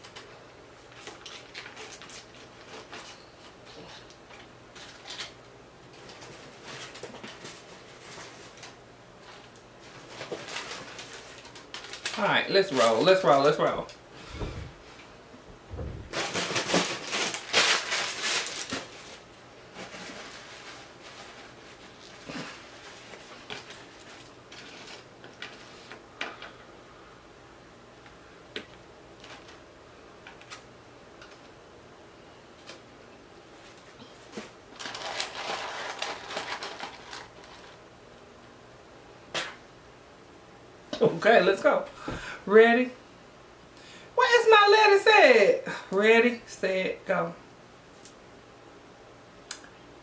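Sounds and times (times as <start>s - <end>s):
paper wrapper crinkling: 0.9s - 3.6s, 6.0s - 13.8s, 16.1s - 26.0s, 33.6s - 37.8s.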